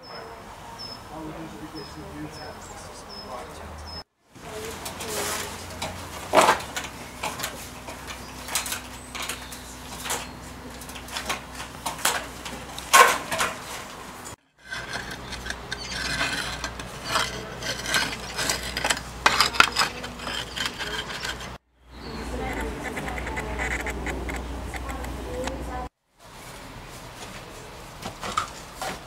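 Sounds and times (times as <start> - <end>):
roof tiles clinking and scraping: 4.5 - 14.0, 14.6 - 21.6.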